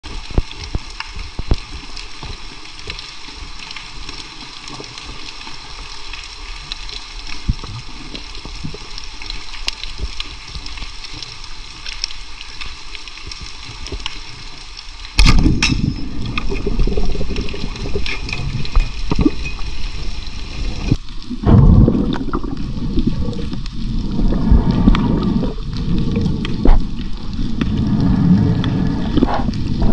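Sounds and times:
clicks and crackles: 0.0s - 29.9s
speargun firing snap: 15.2s - 15.8s
churning water: 15.2s - 29.9s
underwater hiss: 15.2s - 29.9s.

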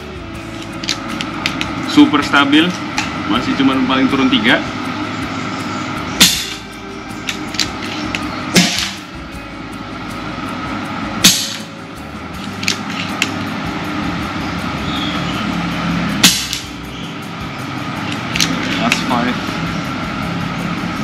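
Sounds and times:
air rifle shots: 8.5s - 9.0s.

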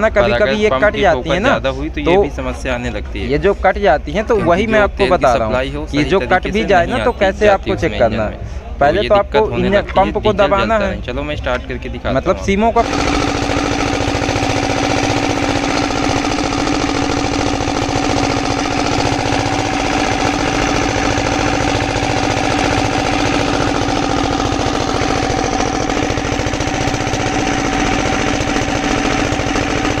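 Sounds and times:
diesel engine knocking: 12.8s - 30.0s.

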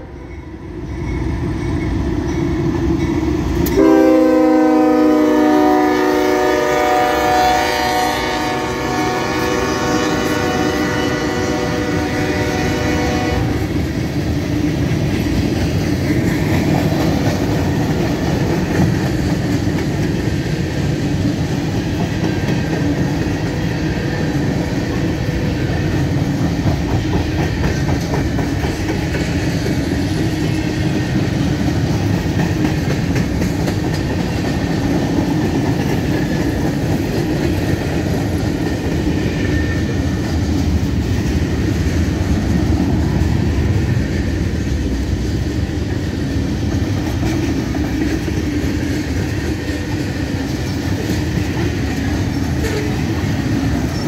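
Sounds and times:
locomotive horn blast: 3.7s - 13.7s.

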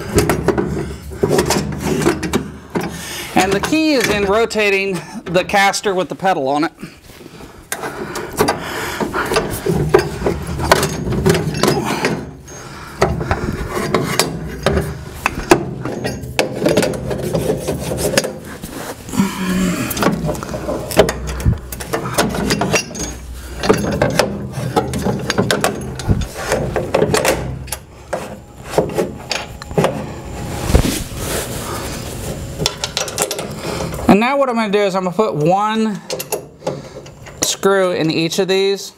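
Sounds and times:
sharp metal knocks and clicks: 9.3s - 12.3s, 20.0s - 27.8s.

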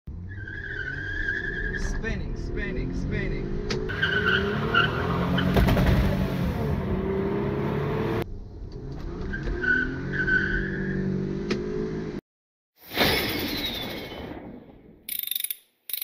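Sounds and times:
car engine revving: 0.1s - 12.2s.

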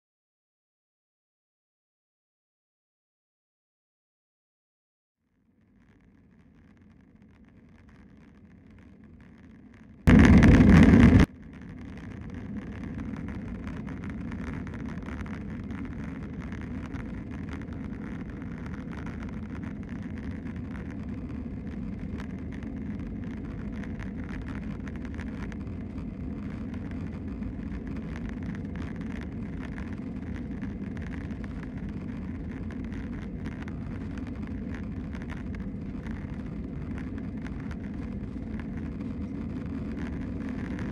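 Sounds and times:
loud burst: 10.1s - 11.3s.

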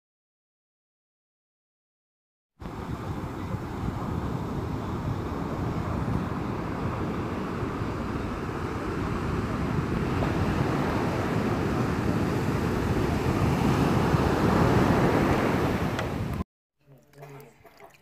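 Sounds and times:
ocean surf washing up beach: 2.6s - 16.4s
wind buffeting microphone: 2.6s - 16.4s.

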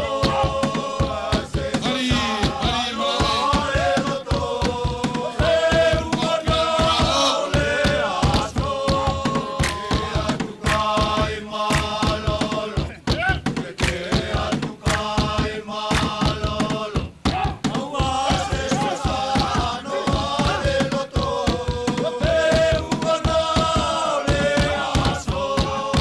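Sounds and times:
group chanting a song: 0.0s - 26.0s
sharp percussive beats: 0.0s - 26.0s.

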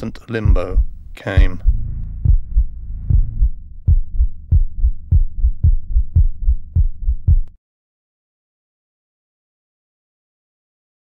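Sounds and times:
heartbeat thumps: 0.4s - 7.5s
low hum: 0.4s - 7.5s.

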